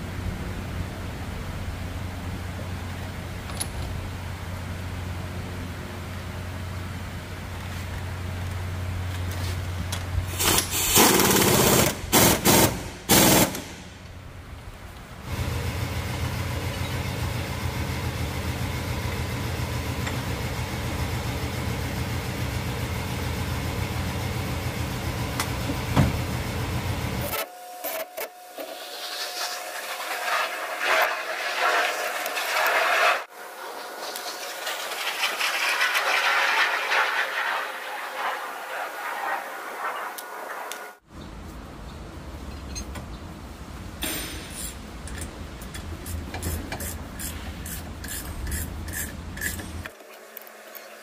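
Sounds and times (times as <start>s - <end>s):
loud hissing rushes: 28.8s - 41.0s.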